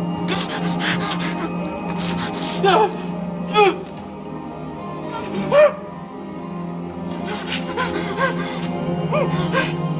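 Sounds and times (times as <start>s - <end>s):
film music: 0.0s - 9.9s
man sobbing: 0.2s - 3.9s, 7.1s - 9.9s.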